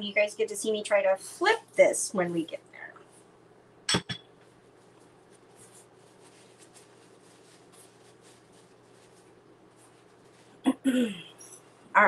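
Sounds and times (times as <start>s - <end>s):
low steady hum: 0.0s - 12.0s
paper towel rustling: 4.4s - 10.6s.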